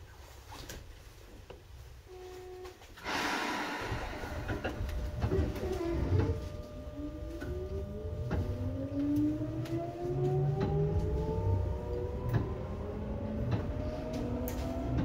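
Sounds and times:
burst of hiss: 3.0s - 4.5s
traction motor whine rising: 3.1s - 15.0s.

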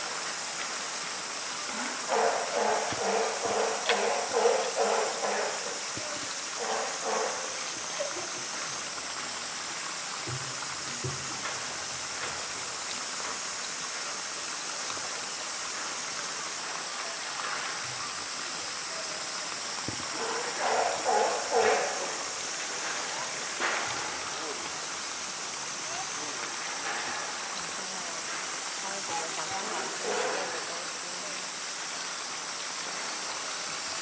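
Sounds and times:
rushing background hiss: 0.0s - 34.0s
voices: 1.6s - 9.0s, 16.2s - 31.8s.

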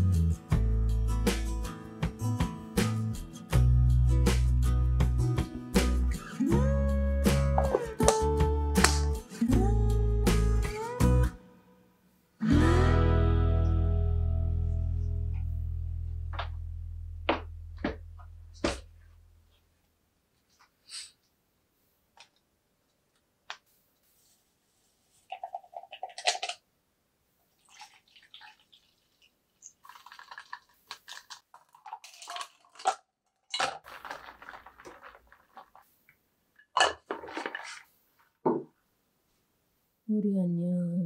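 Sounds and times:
straw rattling in plastic cup: 25.3s - 26.6s, 27.6s - 35.9s, 36.6s - 37.9s
cup clattering set down: 36.8s - 37.8s, 38.4s - 38.7s.

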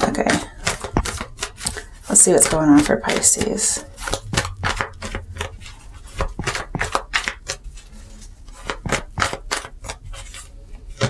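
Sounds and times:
cards being shuffled: 0.3s - 11.0s.

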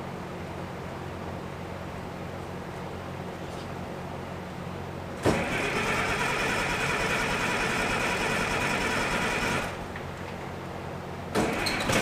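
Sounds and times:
starter motor cranking diesel engine: 5.2s - 9.8s, 11.4s - 12.0s.

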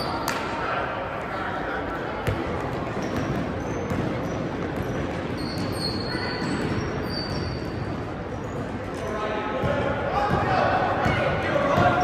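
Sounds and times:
hubbub of spectators in a hall: 0.0s - 12.0s
basketball bouncing on court: 2.2s - 8.1s, 9.6s - 12.0s
sneaker squeaks: 2.2s - 10.4s.

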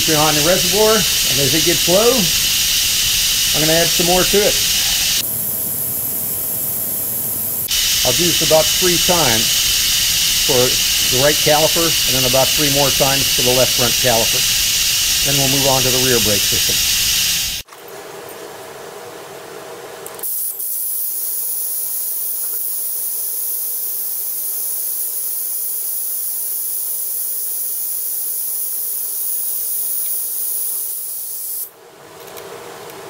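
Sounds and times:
vacuum brake bleeder hissing: 0.0s - 17.6s, 20.2s - 31.7s.

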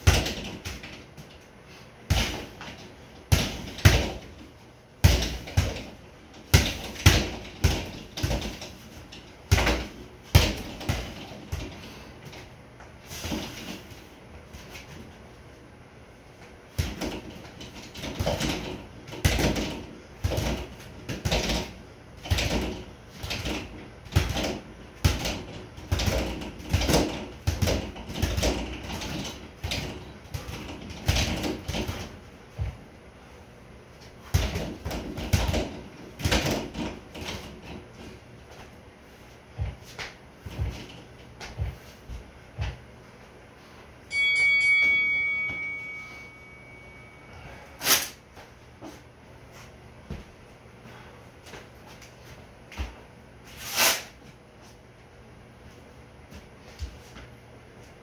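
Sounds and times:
boxing gloves smacking punch bag: 0.0s - 1.3s, 2.0s - 4.4s, 5.0s - 8.8s, 9.5s - 11.8s, 16.7s - 32.8s, 34.2s - 37.5s.

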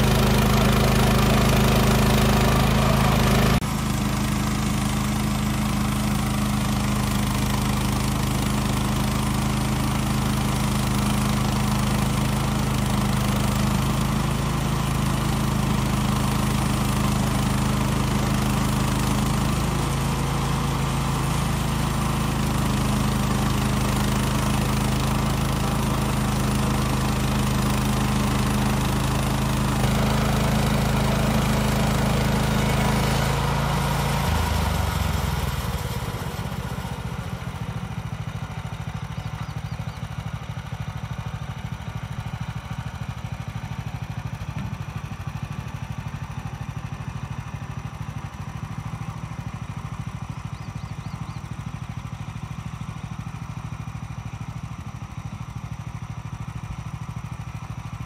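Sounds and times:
bandsaw mill sawing log: 0.0s - 38.9s.

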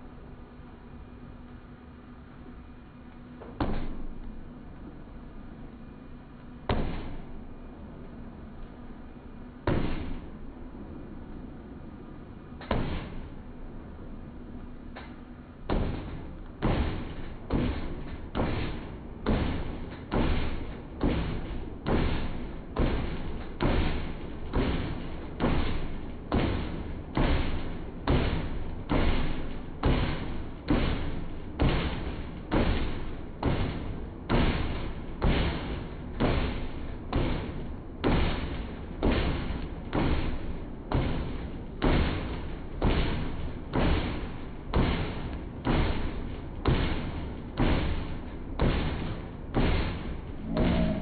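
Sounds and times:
shoes thumping on treadmill: 15.8s - 51.0s.

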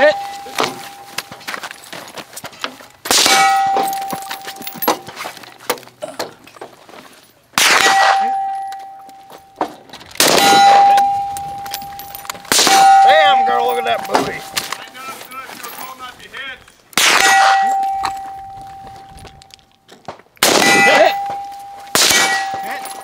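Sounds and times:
steel targets ringing from bullet hits: 0.0s - 1.4s, 3.1s - 5.0s, 7.6s - 9.6s, 10.2s - 14.6s, 17.0s - 18.8s, 20.4s - 23.0s
gunshot cracks: 7.6s - 8.3s, 17.0s - 17.7s, 20.4s - 21.1s, 22.0s - 22.6s.

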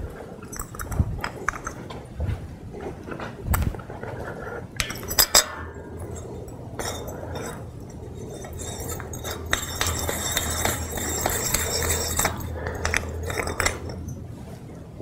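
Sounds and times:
metal clinks: 0.4s - 1.9s, 4.8s - 14.3s
metal scraping on metal: 4.5s - 14.2s.

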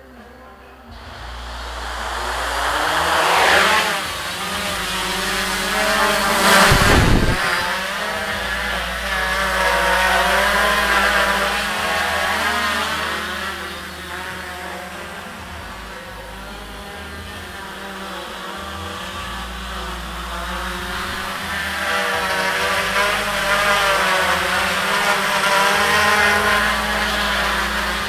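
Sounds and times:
loud whoosh: 0.9s - 12.3s
drone propellers buzzing: 0.9s - 28.0s.

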